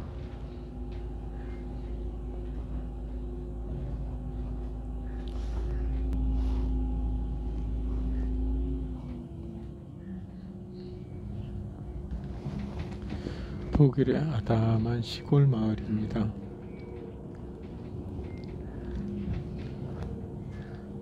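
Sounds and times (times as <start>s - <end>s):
vehicle engine hum from inside: 0.0s - 14.5s.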